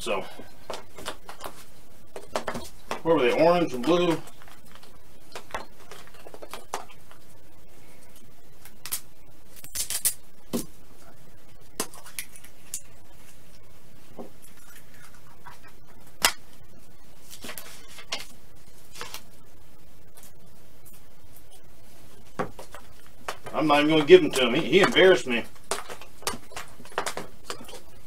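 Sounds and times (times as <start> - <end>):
plastic eggs clicking and tapping: 22.4 - 27.9.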